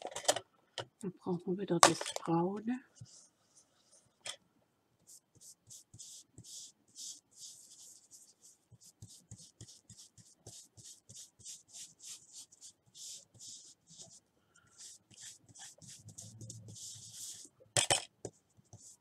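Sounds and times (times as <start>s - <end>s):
brush rubbing on card: 5.0s - 17.5s, 18.3s - 19.0s.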